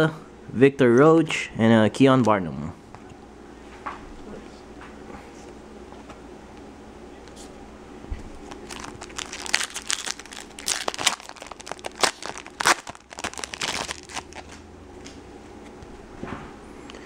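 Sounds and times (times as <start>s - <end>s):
foil wrapper crackling: 8.5s - 14.6s.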